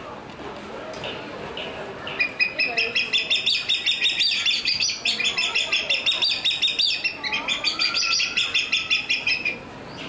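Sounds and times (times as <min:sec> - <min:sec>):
hornbill piping whistles: 0:02.2 - 0:09.6.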